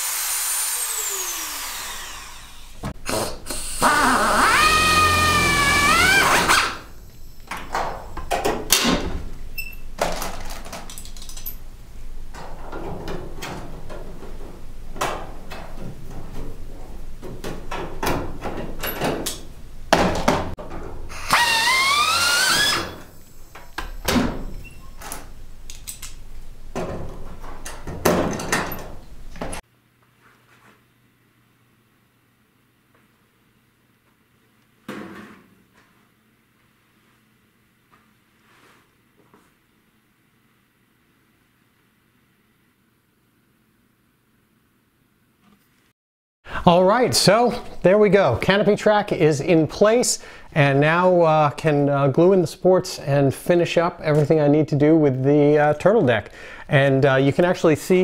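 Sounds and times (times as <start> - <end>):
pneumatic tool running: 0.0 - 6.9, 21.1 - 23.1.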